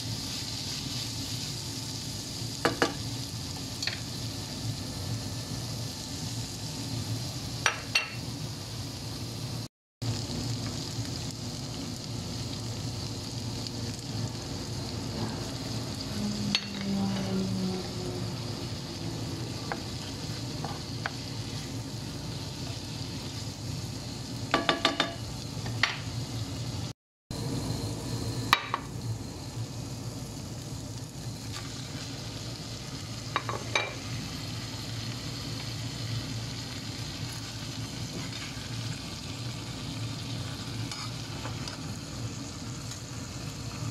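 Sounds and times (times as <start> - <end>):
vegetables sizzling in a frying pan: 0.0 - 43.9
spatula scraping a pan: 40.8 - 41.5.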